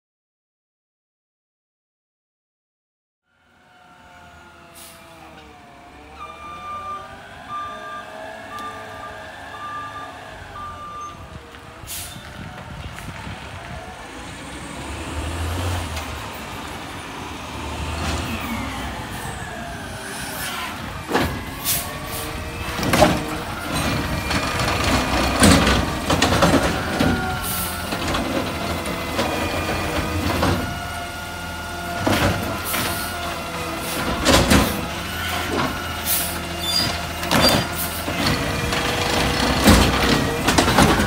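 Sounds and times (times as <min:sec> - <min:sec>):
garbage truck diesel engine whining: 0:03.3 - 0:41.0.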